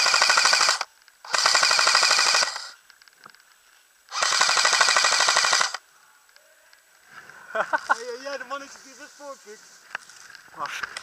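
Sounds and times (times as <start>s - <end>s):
airsoft rifle full-auto bursts: 0.0s - 2.8s, 4.1s - 5.8s.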